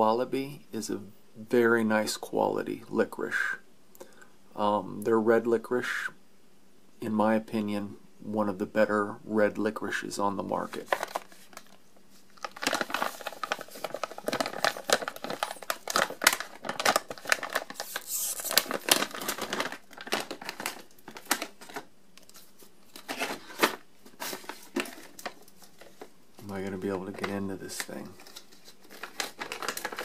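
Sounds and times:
plastic pouch crinkling: 10.7s - 30.0s.

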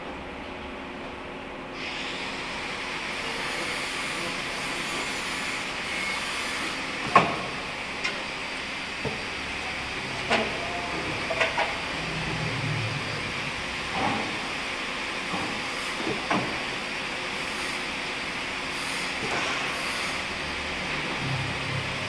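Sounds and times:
welding arc hissing: 18.7s - 20.9s.

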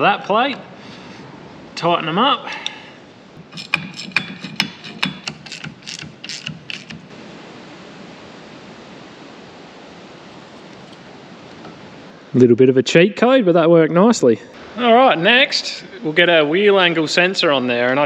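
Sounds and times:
ratchet spanner clicking: 3.4s - 7.1s.

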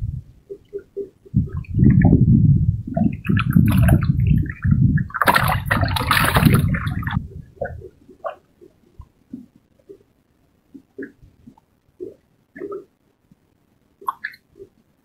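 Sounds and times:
low rumble: 0.0s - 0.5s, 1.3s - 8.1s
fish flapping and splashing: 3.0s - 8.7s.

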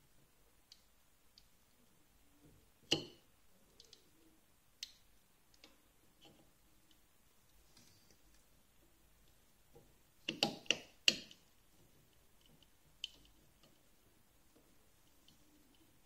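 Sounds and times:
sharp metal clicks and taps: 10.2s - 11.4s.

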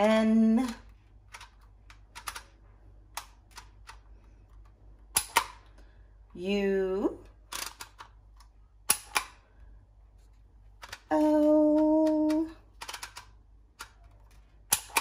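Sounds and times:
woman singing a steady note: 11.1s - 12.6s.

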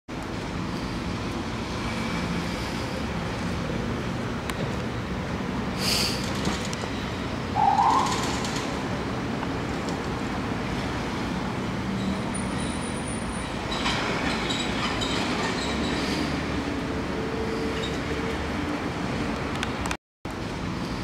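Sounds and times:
city street traffic: 0.1s - 21.0s
brief high-pitched sound: 7.6s - 8.4s.

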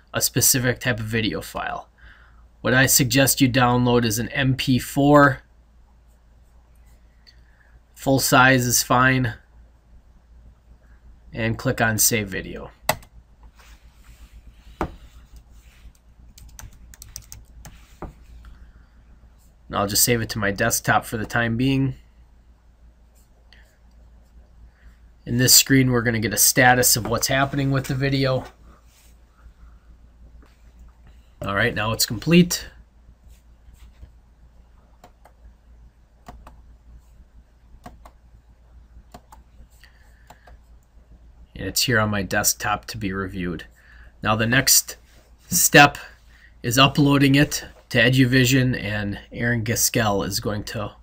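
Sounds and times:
low steady hum: 0.0s - 51.0s
computer mouse clicks: 14.8s - 17.8s, 36.2s - 36.6s, 37.8s - 38.2s, 39.1s - 39.5s, 40.2s - 40.9s.

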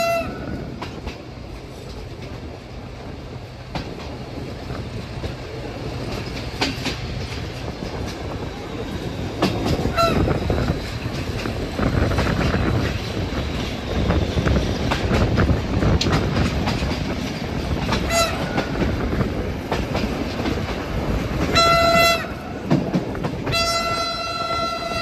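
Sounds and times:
train horn: 0.0s - 0.8s, 9.8s - 10.5s, 18.0s - 18.8s, 21.4s - 22.7s, 23.4s - 25.0s
train wheels clattering: 0.0s - 25.0s.

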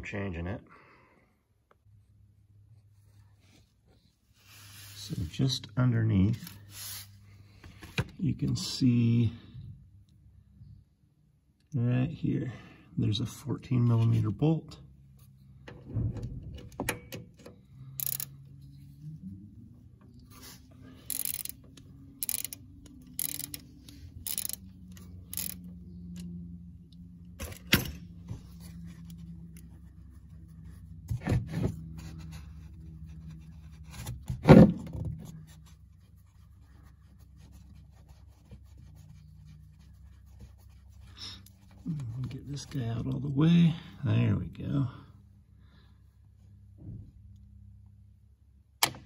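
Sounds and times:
socket ratchet clicks: 18.0s - 18.3s, 21.1s - 26.2s.

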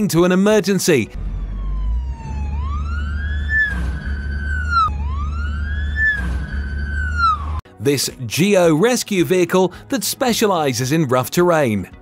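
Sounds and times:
fire truck siren wailing: 1.1s - 7.6s
low road rumble: 1.1s - 7.6s.

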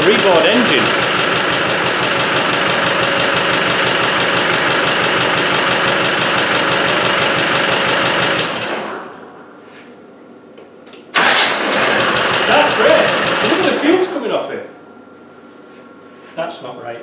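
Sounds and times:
diesel engine idling: 0.0s - 9.1s, 11.2s - 13.9s
engine running down: 0.0s - 9.3s, 11.2s - 14.3s.

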